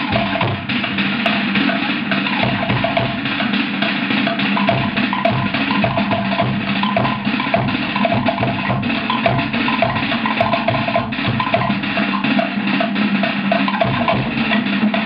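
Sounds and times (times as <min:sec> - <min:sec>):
deep drum beats: 0:00.0 - 0:15.0.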